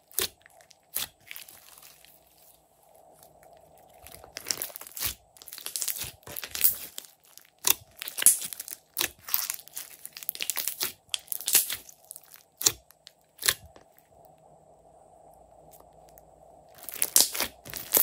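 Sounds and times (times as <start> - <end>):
slime crackling and clicking: 0.1 - 2.1, 4.0 - 13.9, 16.8 - 18.0.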